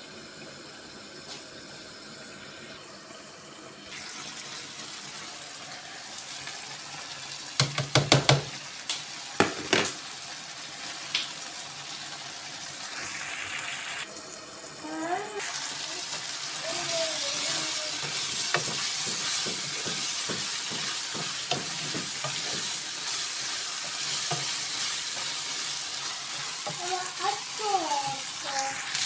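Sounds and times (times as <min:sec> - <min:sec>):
food sizzling in a frying pan: 0:03.8 - 0:29.0.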